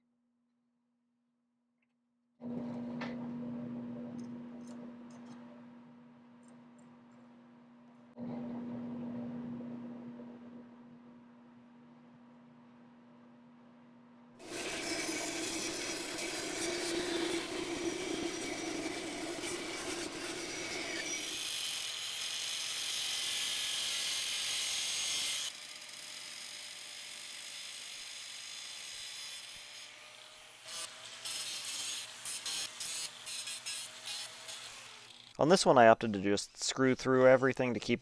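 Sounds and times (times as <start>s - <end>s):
angle grinder cutting steel: 14.4s - 35.4s
power saw cutting wood: 14.4s - 35.4s.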